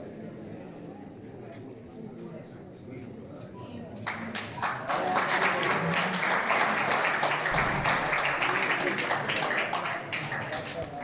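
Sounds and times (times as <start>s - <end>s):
spectators applauding: 4.0s - 11.0s.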